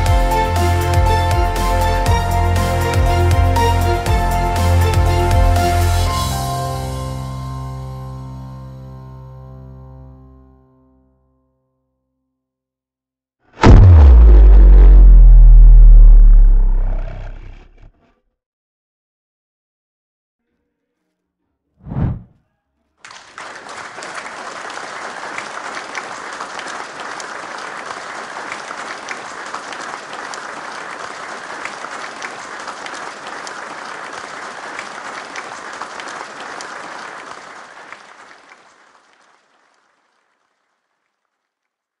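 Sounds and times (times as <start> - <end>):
loud downward pitch sweep: 13.6 - 17.8
crowd applauding: 23.1 - 40.5.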